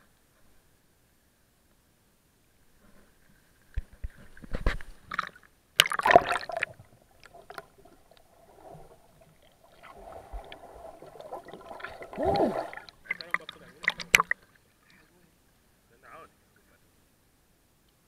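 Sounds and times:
seawater splashing: 5.0s - 15.0s.

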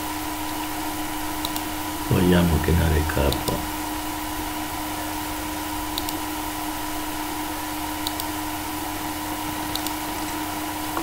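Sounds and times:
electrical hum: 0.0s - 11.0s
computer mouse clicks: 1.4s - 1.7s, 6.0s - 6.2s, 8.0s - 8.4s, 9.7s - 10.0s.

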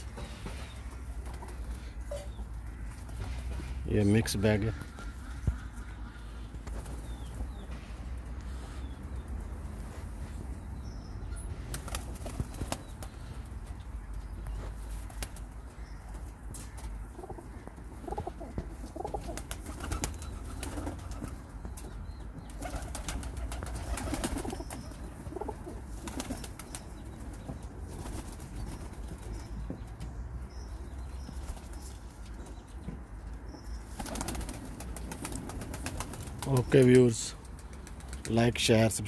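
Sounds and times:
wings flapping: 6.6s - 7.6s, 11.6s - 13.4s, 14.8s - 15.6s, 18.1s - 29.5s, 33.9s - 38.4s
pigeons cooing: 16.6s - 28.7s.

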